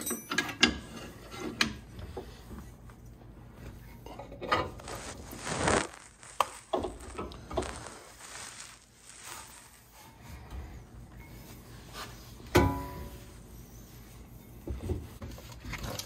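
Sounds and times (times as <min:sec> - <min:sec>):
metal clinks and scraping: 0:00.0 - 0:01.1.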